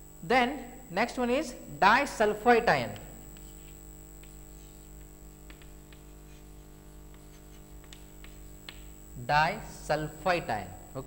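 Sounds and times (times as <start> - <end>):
thin high whine: 0.0 - 11.0
chalk tapping: 2.9 - 9.0
chalk scratching on blackboard: 3.3 - 8.9.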